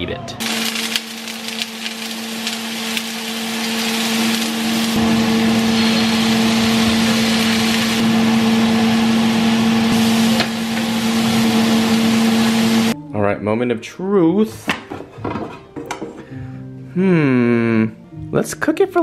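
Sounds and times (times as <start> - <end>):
steady hum: 0.4 - 13.0
vegetables sizzling on griddle pan: 0.4 - 13.0.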